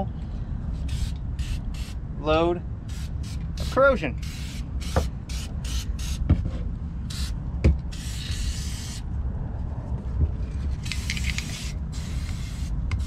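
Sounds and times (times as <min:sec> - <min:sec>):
aerosol can spraying: 0:02.9 - 0:06.2, 0:07.1 - 0:09.0, 0:10.8 - 0:13.0
low rumble: 0:09.0 - 0:11.1.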